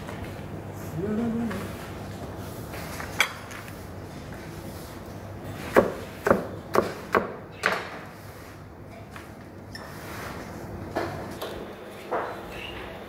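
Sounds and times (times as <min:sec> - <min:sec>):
knife chopping on cutting board: 0:05.7 - 0:08.0.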